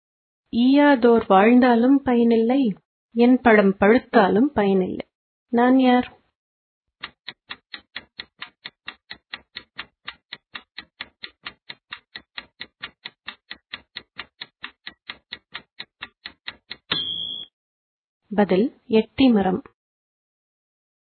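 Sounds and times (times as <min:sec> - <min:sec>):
fast clock-like ticking: 0:07.0 - 0:16.9.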